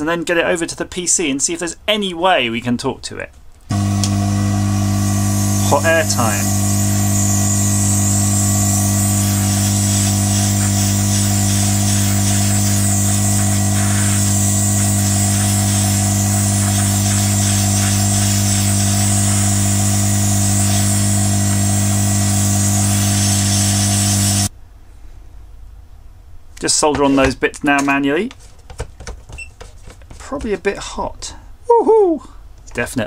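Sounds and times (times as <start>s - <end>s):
hot air station fan hum: 3.7s - 24.5s
hiss of rushing air: 5.3s - 24.5s.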